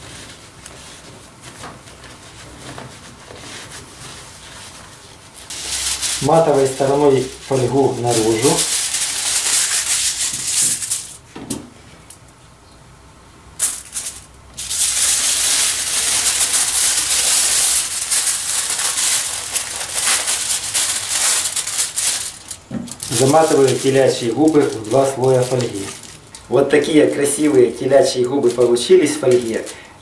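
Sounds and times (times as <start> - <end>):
aluminium foil crinkling: 0.0 - 11.2, 13.6 - 30.0.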